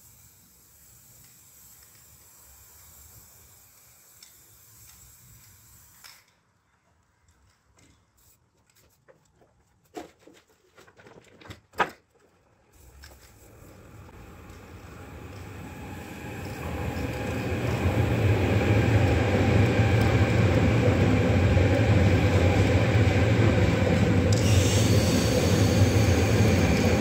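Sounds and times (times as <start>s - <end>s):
aerosol spray can hissing: 0.0s - 6.2s, 24.3s - 27.0s.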